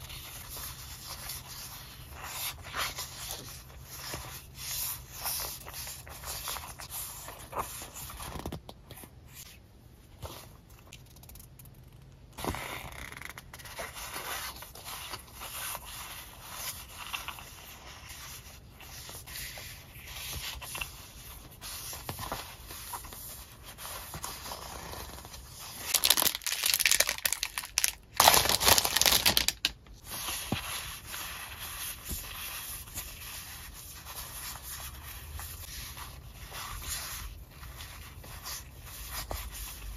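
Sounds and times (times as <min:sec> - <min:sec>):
paper sheets rustling: 0:25.2 - 0:33.2.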